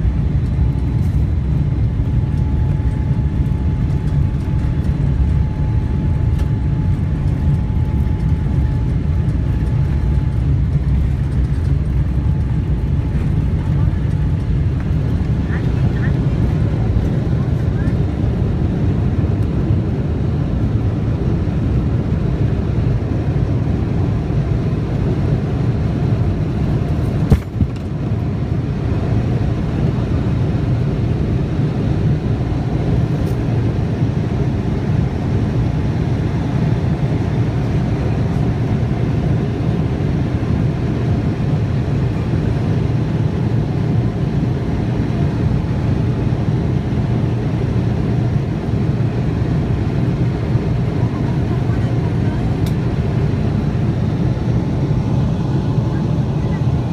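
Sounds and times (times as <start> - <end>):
airplane cabin rumble: 0.0 - 56.9.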